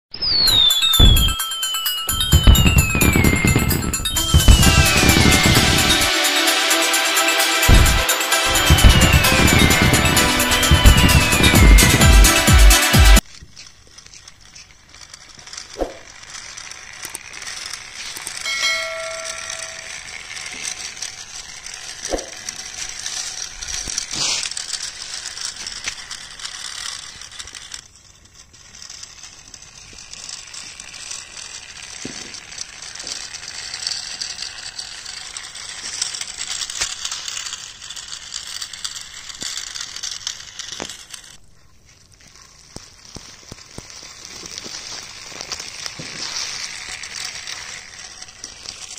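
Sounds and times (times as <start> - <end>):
brief pitched tone: 0.1 - 13.2
plastic wheels rattling on gravel: 0.4 - 48.9.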